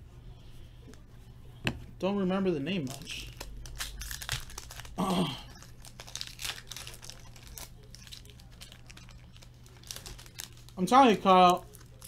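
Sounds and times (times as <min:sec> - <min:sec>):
foil pack crinkling and tearing: 0:02.8 - 0:12.0.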